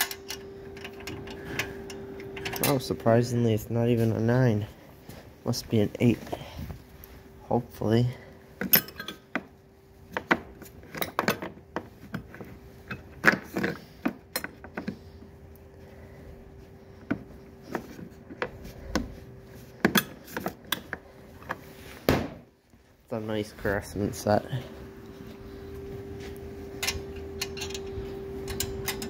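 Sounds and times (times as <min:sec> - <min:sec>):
metal tools clinking: 0:00.0 - 0:03.3, 0:08.6 - 0:09.4, 0:26.8 - 0:29.0
faint steady hum: 0:00.0 - 0:29.0.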